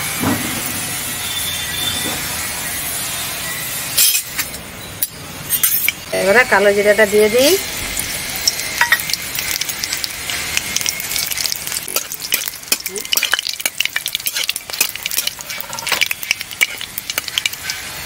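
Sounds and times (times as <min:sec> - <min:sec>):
spices sizzling in hot oil: 0:05.1 - 0:18.0
spatula scraping metal pan: 0:11.1 - 0:18.0.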